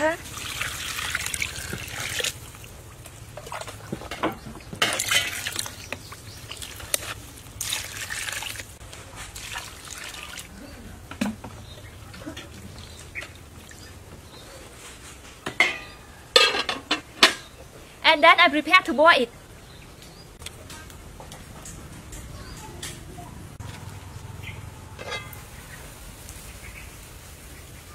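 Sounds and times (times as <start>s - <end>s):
water sloshing in a pot: 0.0s - 17.5s, 25.0s - 26.5s.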